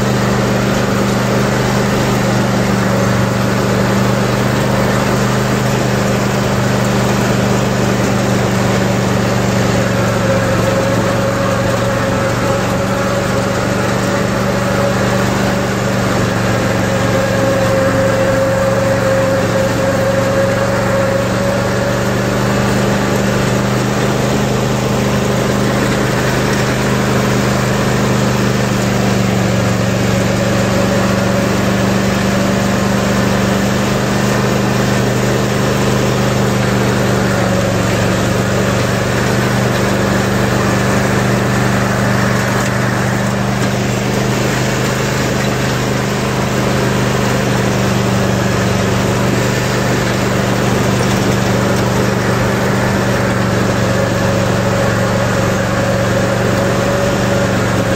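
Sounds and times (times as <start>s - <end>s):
riding mower engine running: 0.0s - 57.9s.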